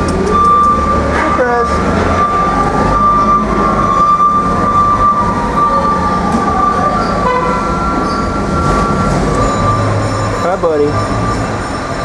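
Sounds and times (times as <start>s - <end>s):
loud machinery noise: 0.0s - 12.0s.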